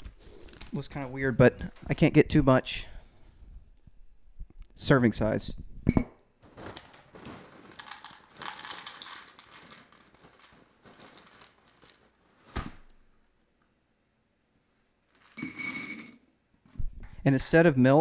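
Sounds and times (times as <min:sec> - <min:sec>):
cereal rattling into plastic cup: 0:06.6 - 0:12.2, 0:15.1 - 0:15.5
cereal pouch crinkling: 0:06.6 - 0:12.3.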